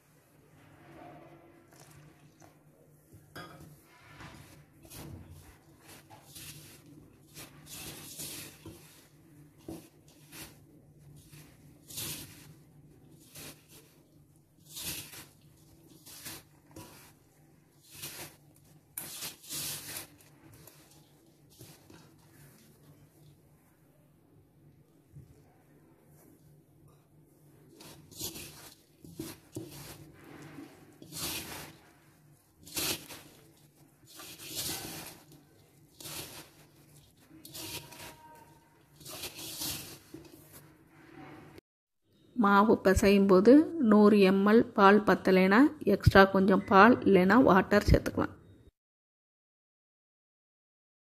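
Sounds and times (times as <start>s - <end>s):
fingers mixing flour in steel bowl: 0.7s - 41.6s.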